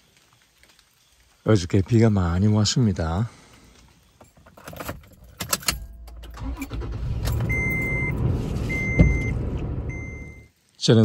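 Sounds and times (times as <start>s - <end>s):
keys jangling: 4.2s - 6.3s
car engine running: 6.4s - 10.4s
electronic warning chime: 7.4s - 10.5s.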